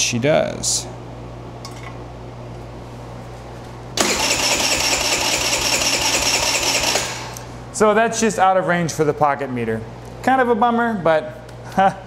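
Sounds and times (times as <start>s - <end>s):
small engine being cranked: 4.0s - 7.4s.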